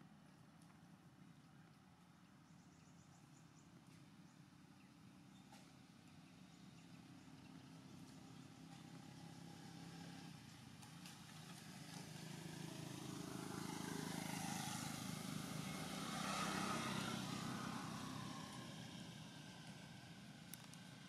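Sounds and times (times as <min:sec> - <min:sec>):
vehicle engine hum: 0:04.2 - 0:21.0
road noise: 0:05.6 - 0:21.0.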